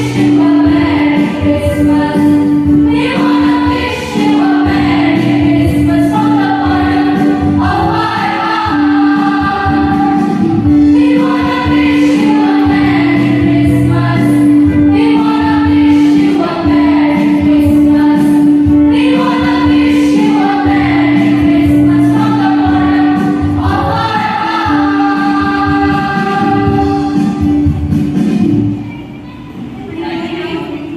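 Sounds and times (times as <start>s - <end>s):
choir singing a carol: 0.0s - 27.7s.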